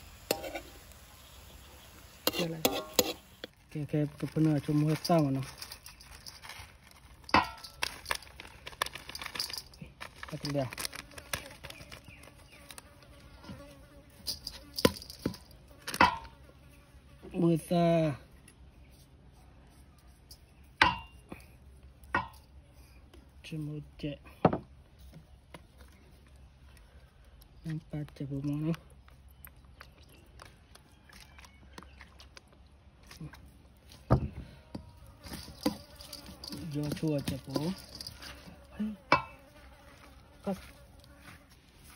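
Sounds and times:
insect buzzing: 0.0s - 3.5s, 10.8s - 17.4s, 34.9s - 41.6s
spoon scraping metal bowl: 0.2s - 0.8s, 2.2s - 3.6s, 35.2s - 38.6s.

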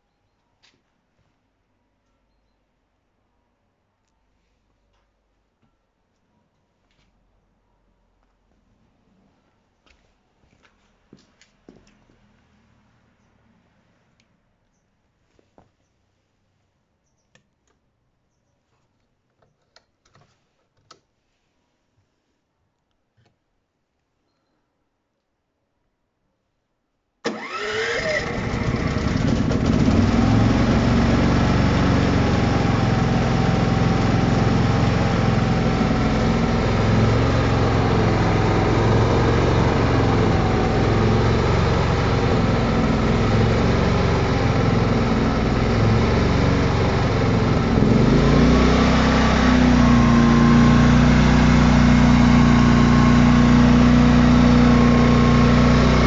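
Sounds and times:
generator engine starting: 27.2s - 56.0s
generator engine running: 27.3s - 56.0s.

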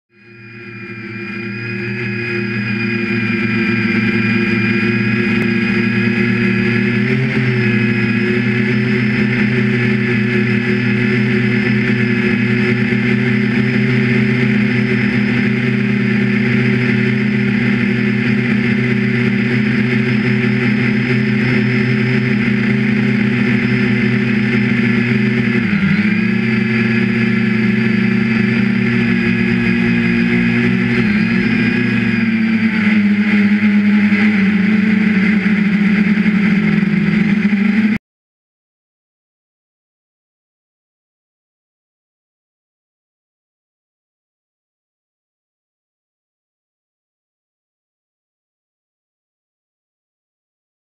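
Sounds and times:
quadcopter motors droning: 0.1s - 38.0s.

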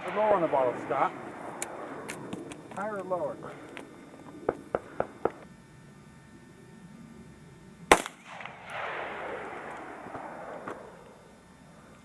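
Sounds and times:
rifle shot: 7.9s - 11.0s.

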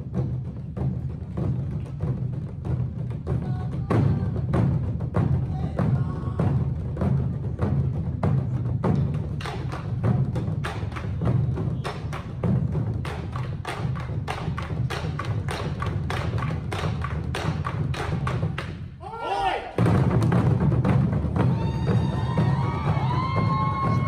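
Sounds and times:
barrel drums struck with sticks: 0.0s - 19.0s, 19.8s - 24.0s.

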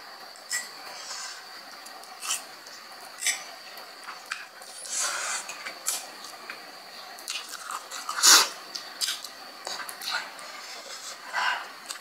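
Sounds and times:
slurping and chewing noodles: 2.1s - 2.5s, 7.2s - 12.0s.

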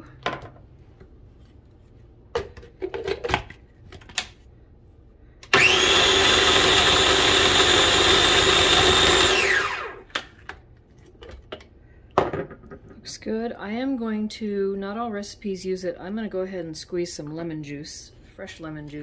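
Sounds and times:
food processor motor whining: 5.4s - 10.2s.

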